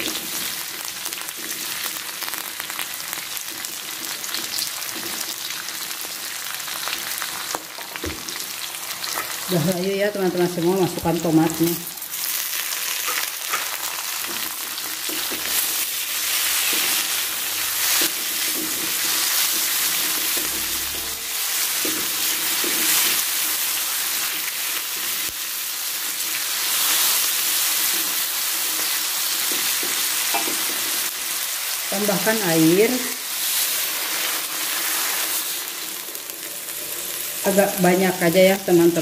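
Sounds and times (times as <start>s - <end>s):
vegetables sizzling in oil: 0.0s - 39.0s
spatula scraping wok: 12.2s - 25.2s.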